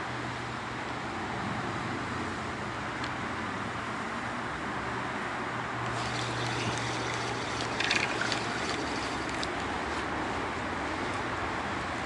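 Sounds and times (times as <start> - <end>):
outdoor background noise: 0.0 - 12.0
fishing reel clicks: 5.8 - 9.7.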